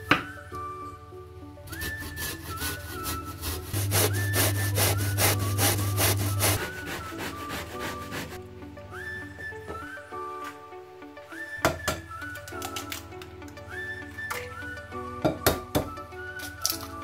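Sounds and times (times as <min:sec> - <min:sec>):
faint background music: 0:00.0 - 0:17.0
zucchini rasping on metal grater: 0:01.8 - 0:08.4
low hum: 0:03.7 - 0:08.4.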